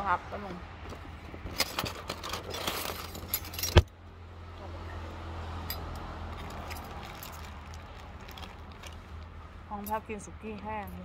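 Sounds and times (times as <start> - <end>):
rustling and jingling clicks: 0.9 - 3.9, 5.7 - 11.0.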